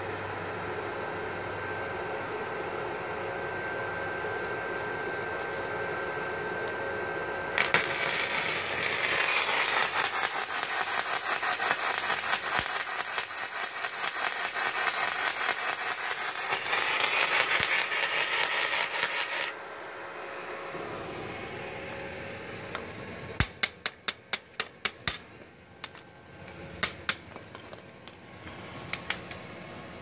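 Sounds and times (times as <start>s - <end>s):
welding arc crackling: 7.6s - 19.6s.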